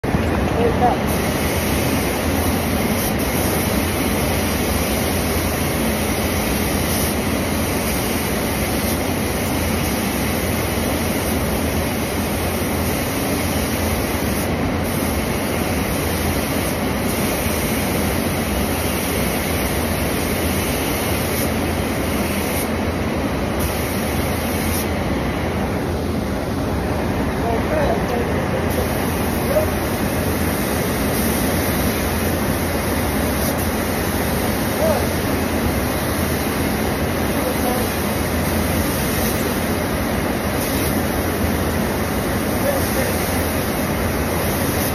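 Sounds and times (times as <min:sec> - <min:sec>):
ventilation airflow rush: 0:00.0 - 0:44.9
compressed-air spray gun: 0:00.1 - 0:44.9.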